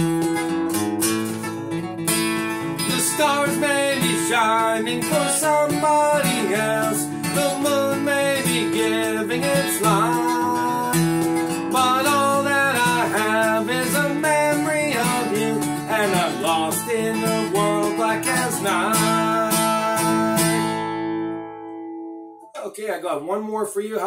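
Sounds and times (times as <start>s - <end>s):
acoustic guitar strumming: 0.0s - 22.7s
man singing: 2.8s - 20.8s.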